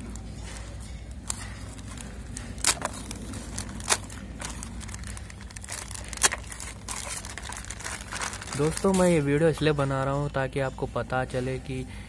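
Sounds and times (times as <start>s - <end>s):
plastic film crinkling and rustling: 0.0s - 10.4s
plastic tearing crackles: 1.2s - 10.2s.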